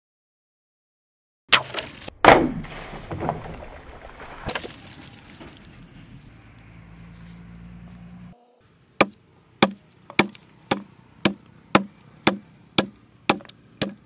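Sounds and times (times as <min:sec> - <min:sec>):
cleaver chopping plastic bottles: 0:01.5 - 0:03.4, 0:09.0 - 0:14.0
water splashing and gurgling: 0:01.6 - 0:06.5.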